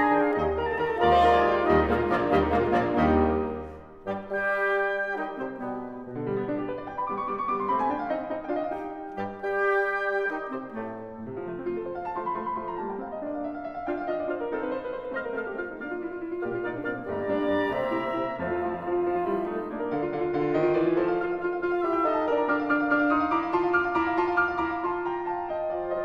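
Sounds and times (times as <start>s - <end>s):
instrumental piano music: 0.0s - 26.0s.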